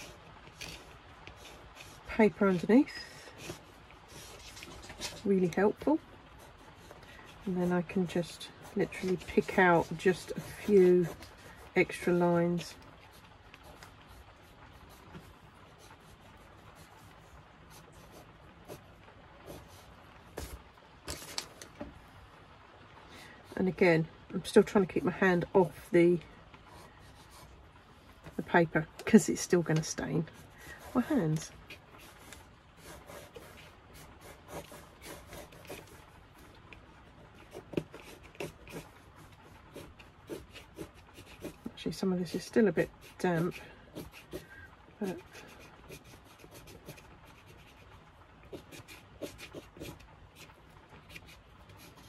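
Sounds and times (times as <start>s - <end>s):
pencil scratching on paper: 0.0s - 18.8s, 29.3s - 36.5s, 37.2s - 52.0s.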